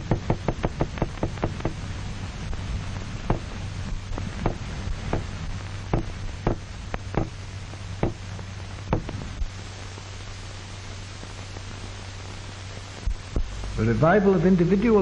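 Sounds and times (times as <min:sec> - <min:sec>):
sharp knocks or clicks: 0:00.0 - 0:01.8, 0:03.2 - 0:03.5, 0:04.2 - 0:05.3, 0:05.9 - 0:07.4, 0:08.0 - 0:08.3, 0:08.9 - 0:09.2
film soundtrack hiss and hum: 0:00.0 - 0:15.0.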